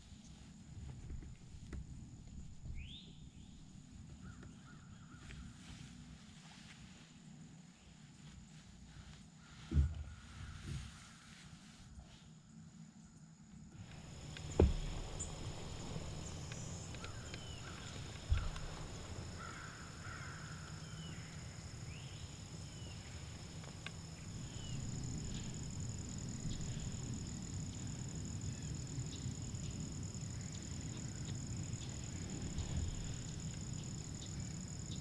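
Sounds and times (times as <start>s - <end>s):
insect drone: 6.9s - 35.0s
thump: 9.7s - 11.0s, 13.9s - 19.0s
low rumble: 13.8s - 35.0s
bird chirps: 13.9s - 25.7s.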